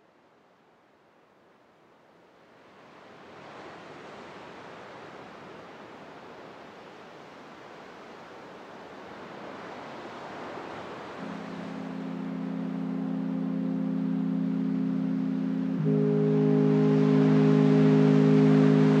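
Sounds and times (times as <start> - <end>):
ambient electronic noise wash: 11.2 - 19.0.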